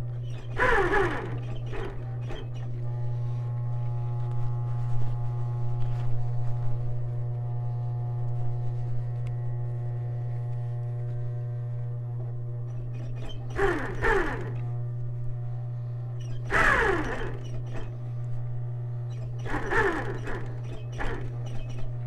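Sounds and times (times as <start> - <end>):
sewing machine stitching: 0.2 - 2.9, 12.7 - 14.7, 16.2 - 18.0, 19.1 - 22.0.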